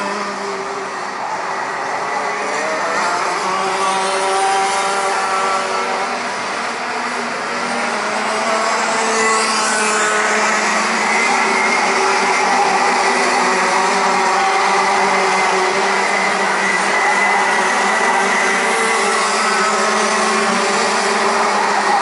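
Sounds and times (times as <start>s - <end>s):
racing kart engines revving: 0.0s - 22.0s.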